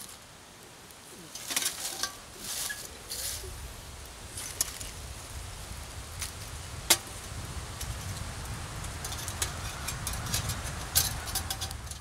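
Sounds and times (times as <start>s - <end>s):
ferro rod scraping: 8.9s - 12.0s.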